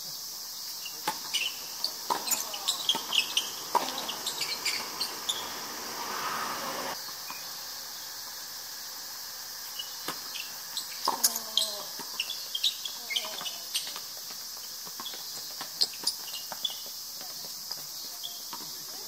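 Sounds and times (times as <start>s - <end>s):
tennis rackets hitting ball: 0.9s - 7.0s
footsteps on hard court: 1.0s - 7.0s
player shouting: 1.6s - 7.0s.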